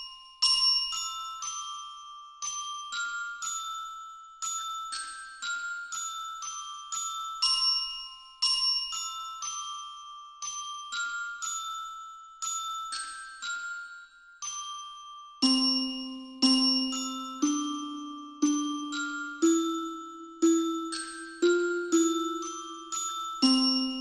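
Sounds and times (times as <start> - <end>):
mallet percussion melody: 15.4 - 24.0.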